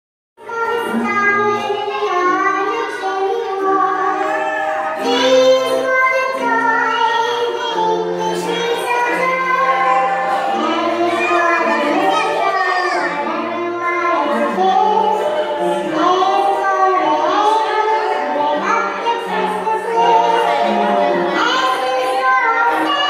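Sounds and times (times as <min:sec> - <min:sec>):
children singing: 0:00.4 - 0:23.0.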